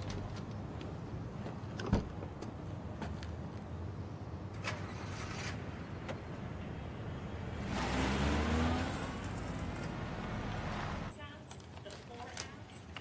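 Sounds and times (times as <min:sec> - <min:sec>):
car driving past: 0:07.5 - 0:11.1.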